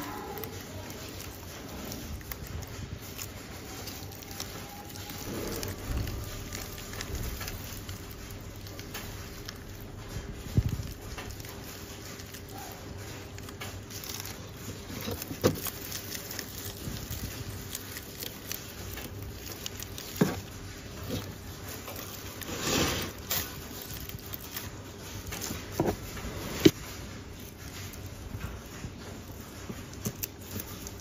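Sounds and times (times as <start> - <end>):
snake skin crackling and rustling: 0.0 - 31.0.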